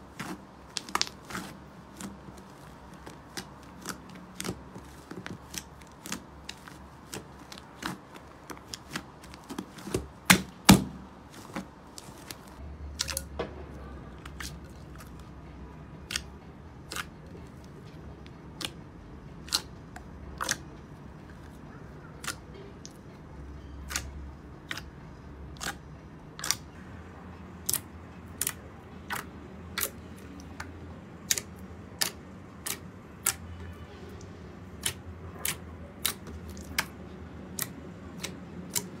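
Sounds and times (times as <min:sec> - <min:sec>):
sticky slime clicks and pops: 0:26.4 - 0:26.7, 0:37.6 - 0:38.9.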